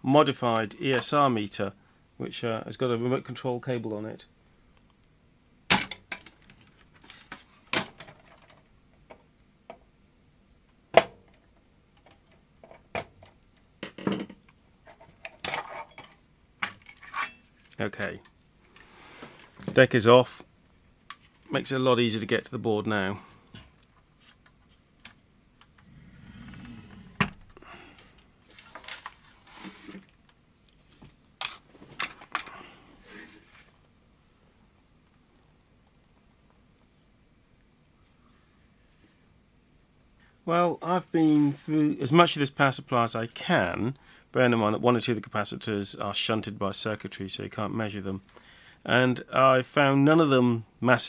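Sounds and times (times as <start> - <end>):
plastic and metal parts clattering: 5.7 - 8.7, 12.0 - 17.8, 28.5 - 30.2, 31.4 - 32.6.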